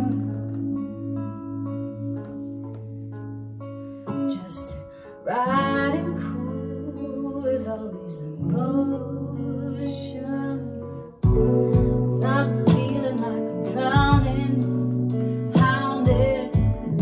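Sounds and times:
woman singing into microphone: 0.0s - 2.9s, 4.1s - 17.0s
deep bass notes: 11.2s - 13.1s, 14.0s - 17.0s
instrumental beat: 11.2s - 17.0s.

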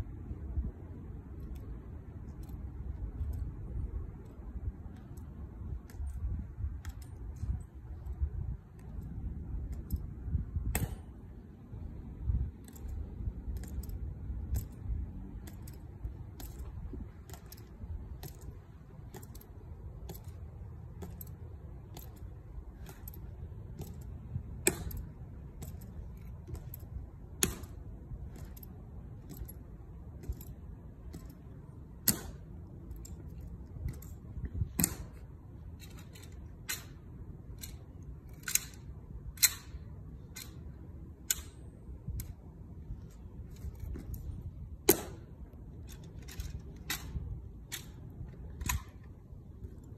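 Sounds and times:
metal-tapped shoes clicking on marble: 15.4s - 35.2s.

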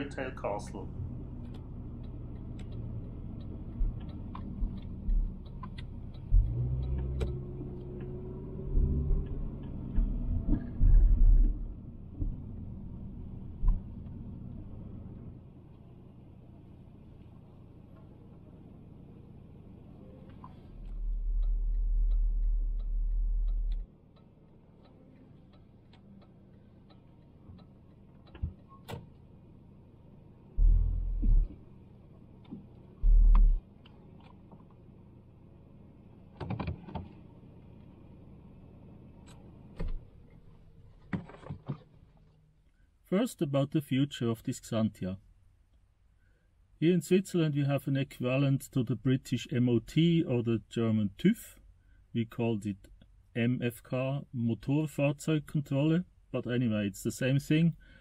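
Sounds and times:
car engine and road rumble: 0.0s - 58.0s
turn signal ticking: 0.1s - 40.8s
loud low rumble: 21.0s - 23.8s, 30.6s - 31.5s.

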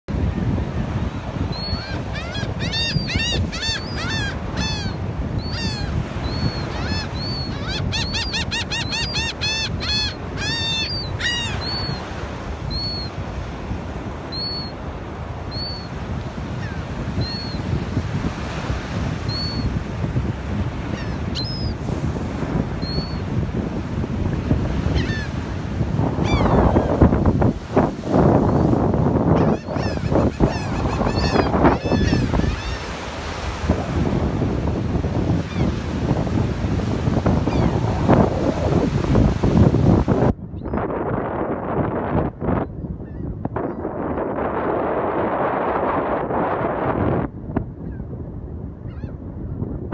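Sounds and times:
surf: 0.1s - 42.6s
wind: 0.1s - 49.9s
gull honking calls: 1.6s - 12.1s, 24.9s - 25.4s, 26.2s - 26.9s, 29.4s - 33.1s, 37.5s - 37.8s.

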